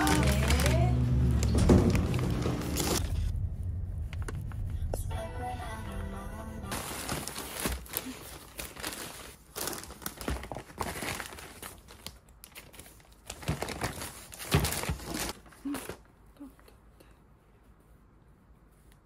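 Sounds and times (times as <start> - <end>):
paper bags rustling: 0.0 - 3.1, 6.7 - 16.1.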